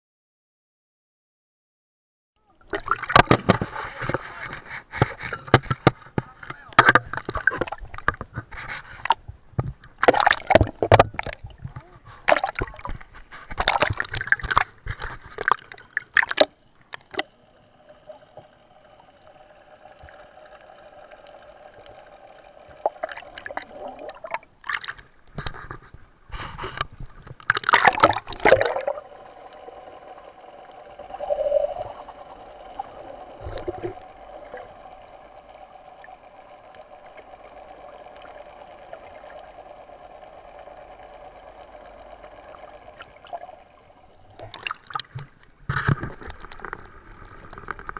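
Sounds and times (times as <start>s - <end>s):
steady hum: 2.8s - 47.9s
sea water splashing around boat: 19.5s - 25.2s, 27.3s - 46.4s.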